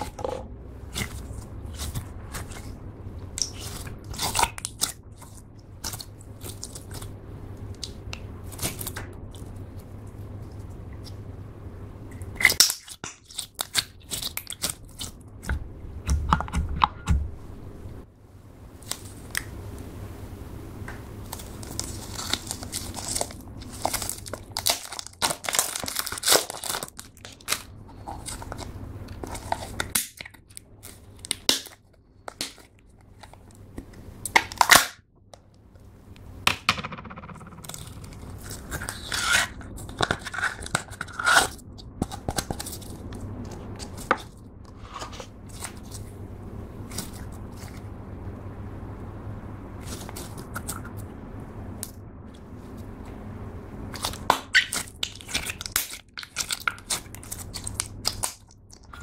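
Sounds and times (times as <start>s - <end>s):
slime sticky crackles and pops: 53.9s - 58.5s.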